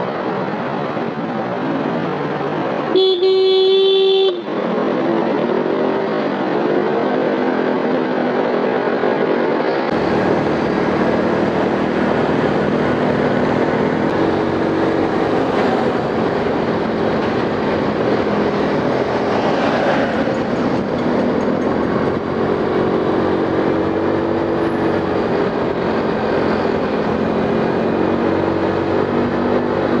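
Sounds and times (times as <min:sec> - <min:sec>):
road and wind noise: 0:00.0 - 0:30.0.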